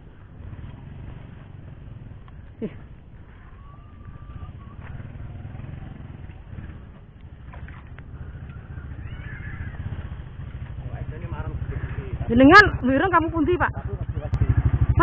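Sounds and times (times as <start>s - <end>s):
small engine running: 0.3s - 15.0s.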